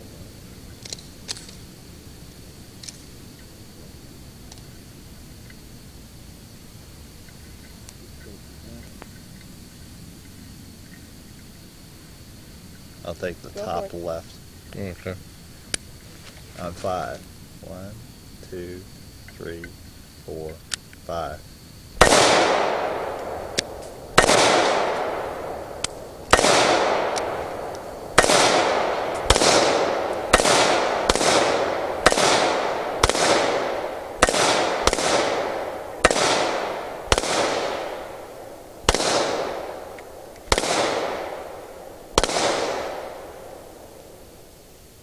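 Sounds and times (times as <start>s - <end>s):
handgun shots echoing: 22.0s - 25.2s, 25.8s - 27.4s, 28.2s - 38.0s, 38.9s - 41.5s, 42.2s - 43.2s.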